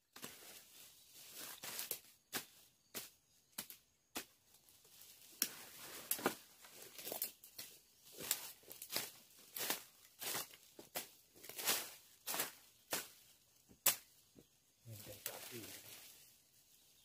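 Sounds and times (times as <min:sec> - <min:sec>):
rustling leaves and twigs: 0:00.0 - 0:17.0
machete chopping brush: 0:13.8 - 0:14.1.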